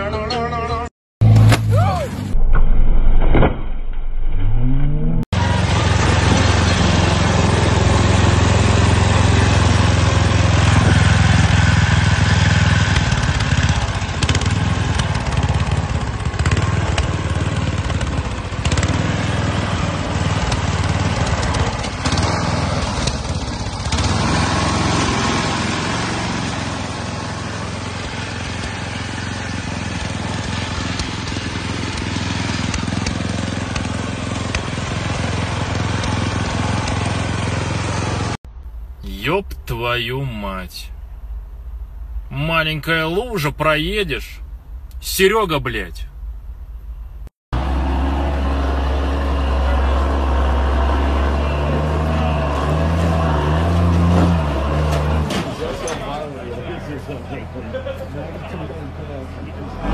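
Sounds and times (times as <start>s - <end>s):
vehicle engine revving: 4.2s - 38.4s, 47.6s - 59.9s
small buggy engine running: 5.4s - 38.4s, 47.6s - 59.9s.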